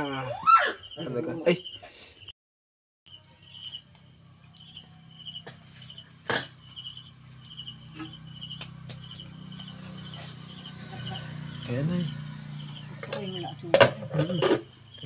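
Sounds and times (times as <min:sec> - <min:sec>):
crickets chirping: 0:00.0 - 0:02.3, 0:03.1 - 0:15.0
high insect hiss: 0:03.1 - 0:15.0.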